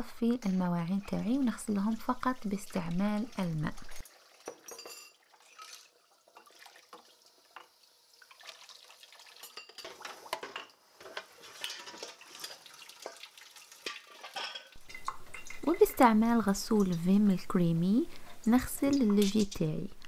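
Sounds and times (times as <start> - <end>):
crockery clinking: 4.4 - 5.2, 9.4 - 12.7, 13.8 - 16.0, 18.8 - 19.6.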